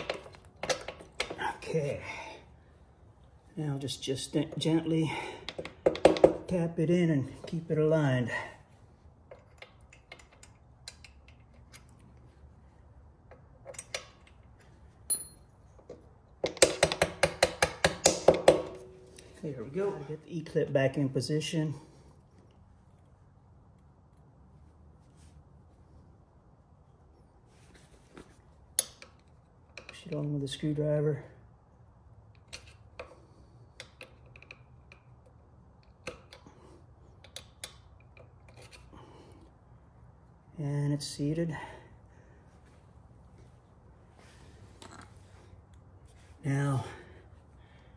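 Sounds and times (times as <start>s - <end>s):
hammer tapping metal pin: 5.4s - 6.5s
small metal clicks and taps: 9.3s - 12.2s, 13.2s - 14.5s, 28.7s - 30.3s, 32.3s - 36.5s, 37.1s - 38.9s.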